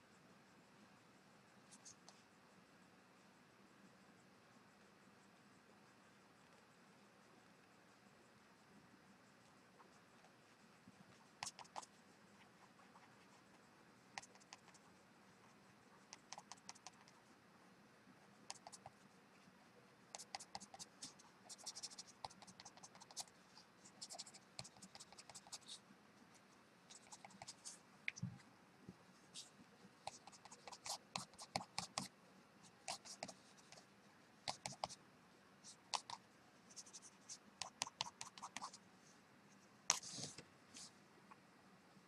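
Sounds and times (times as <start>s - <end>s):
pen scratching on paper: 9.8s - 17.2s, 18.5s - 27.8s, 29.3s - 35.0s, 35.6s - 38.8s, 39.9s - 40.9s.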